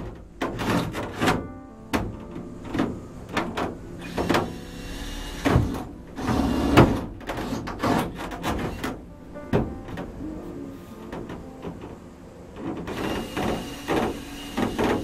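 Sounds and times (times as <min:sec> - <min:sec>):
plastic panels knocking and rattling: 0:00.0 - 0:04.5, 0:05.4 - 0:10.2, 0:11.1 - 0:15.0
cordless drill driving screws: 0:12.9 - 0:15.0.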